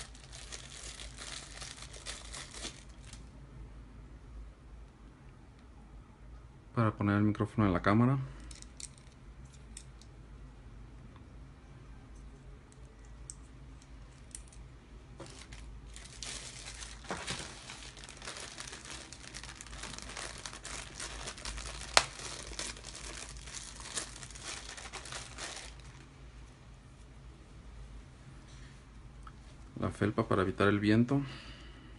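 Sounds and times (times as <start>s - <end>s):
plastic bag crinkling: 0.0s - 3.3s, 15.2s - 26.1s.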